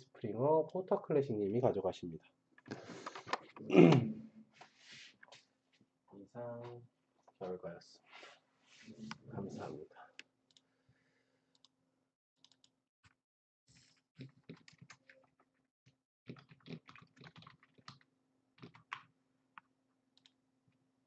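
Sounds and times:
computer keyboard and mouse clicking: 0:13.8 - 0:15.6, 0:16.3 - 0:19.1.

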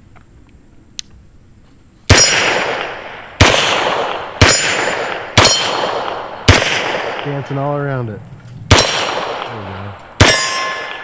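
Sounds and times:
steel targets ringing: 0:02.1 - 0:02.7, 0:04.4 - 0:05.9, 0:10.2 - 0:11.0
pistol shots: 0:02.1 - 0:07.8, 0:08.6 - 0:11.0.

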